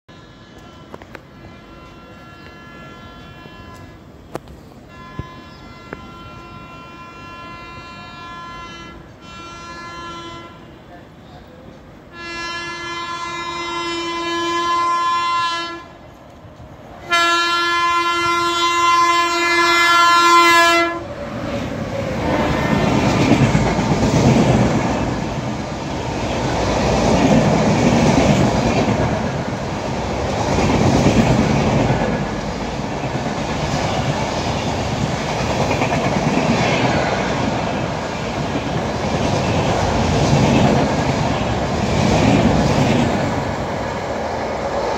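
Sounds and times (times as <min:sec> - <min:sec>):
locomotive horn blasts: 0:00.1 - 0:04.1, 0:04.9 - 0:10.9, 0:12.1 - 0:16.0, 0:17.1 - 0:21.1
train rumble and wheel clatter: 0:00.1 - 0:44.9.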